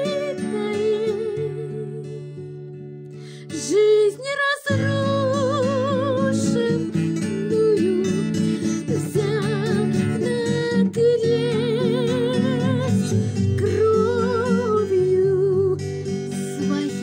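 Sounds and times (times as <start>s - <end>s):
acoustic guitar: 0.0s - 17.0s.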